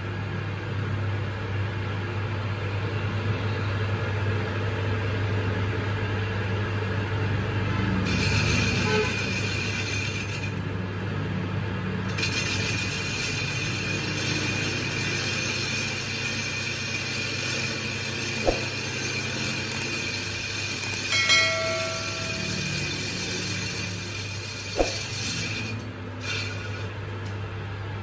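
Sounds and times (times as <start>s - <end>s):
high whine of cutting tool: 12.2s - 26.9s
lathe low hum: 12.9s - 28.0s
short bell-like chime: 21.1s - 23.0s.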